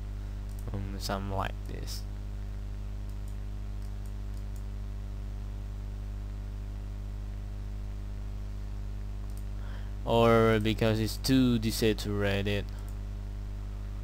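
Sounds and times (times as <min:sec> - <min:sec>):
low electrical hum with hiss: 0:00.0 - 0:14.0
faint mouse clicks: 0:02.4 - 0:04.7, 0:09.2 - 0:09.5, 0:12.6 - 0:13.0.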